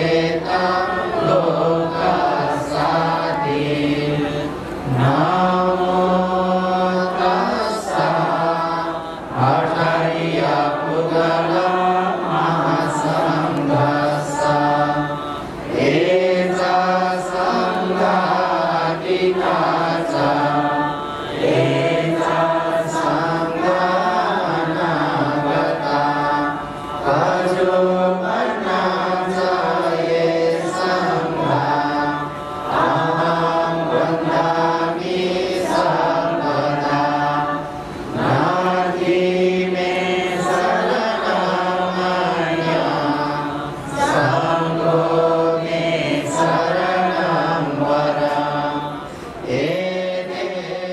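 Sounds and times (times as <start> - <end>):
voices chanting: 0.0 - 50.9.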